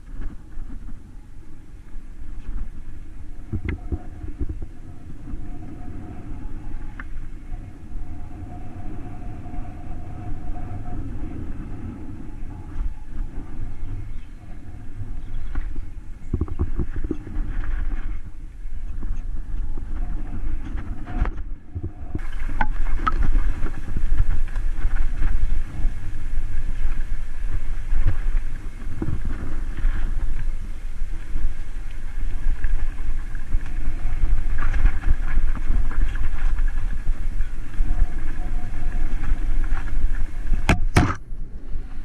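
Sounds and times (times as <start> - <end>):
wind buffeting microphone: 0.0 - 42.0
bike knocking and rattling: 12.6 - 41.3.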